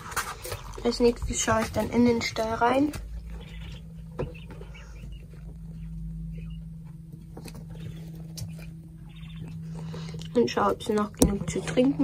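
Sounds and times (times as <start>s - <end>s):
low hum: 0.0s - 12.0s
quail calls: 3.3s - 6.7s, 7.5s - 10.0s.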